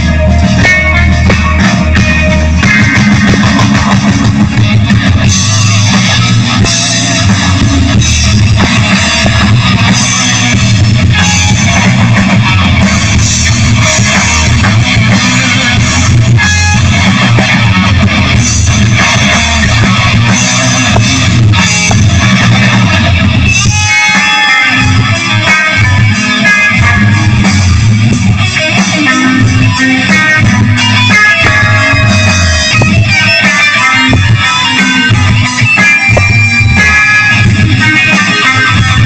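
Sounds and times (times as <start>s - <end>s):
drums: 0.0s - 39.0s
guitars: 0.0s - 39.0s
live rock band playing: 0.0s - 39.0s.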